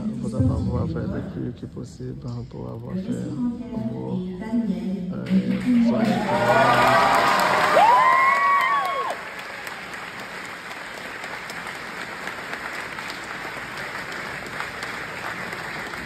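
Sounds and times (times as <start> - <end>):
audience applauding: 5.5 - 16.0.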